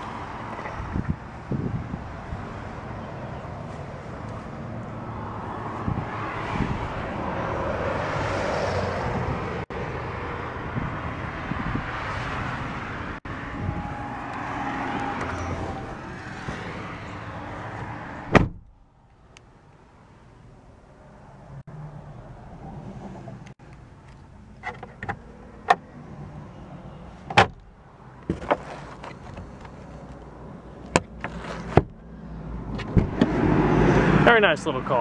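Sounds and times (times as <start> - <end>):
road traffic passing: 0.0 - 35.0
car door shutting: 17.7 - 18.8, 27.2 - 29.8, 30.8 - 32.0, 32.7 - 33.5.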